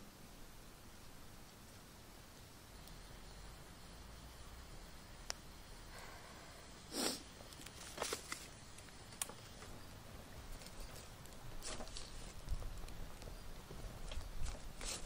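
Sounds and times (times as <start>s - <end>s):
twig fire crackling: 0.0s - 15.0s
rustling scrapes of foil: 7.0s - 8.6s, 10.6s - 12.5s, 14.4s - 15.0s.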